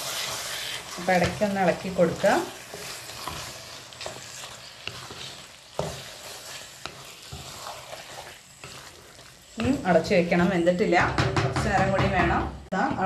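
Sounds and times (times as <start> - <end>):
spoon stirring thick sauce: 0.0 - 10.4
sizzling in a pan: 0.0 - 13.0
spoon tapping against pan: 11.0 - 12.5.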